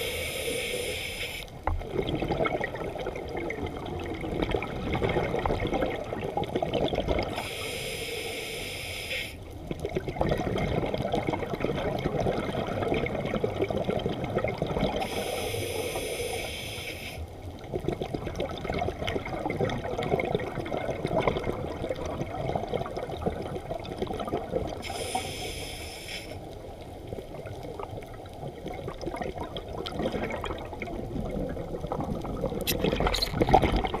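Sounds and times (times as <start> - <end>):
diver breathing hiss: 0.0 - 1.5, 7.3 - 9.4, 15.0 - 17.3, 24.8 - 26.5
muffled underwater wash: 0.0 - 34.0.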